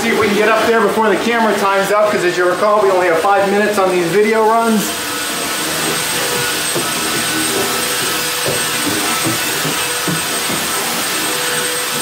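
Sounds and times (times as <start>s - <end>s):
floor sander droning: 0.0s - 12.0s
footsteps on wooden stairs: 5.1s - 12.0s.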